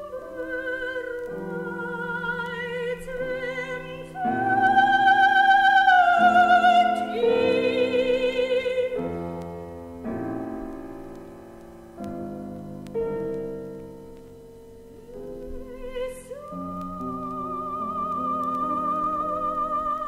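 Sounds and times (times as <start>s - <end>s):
soprano singing: 0.0s - 9.5s, 15.0s - 20.0s
piano accompaniment: 0.0s - 20.0s.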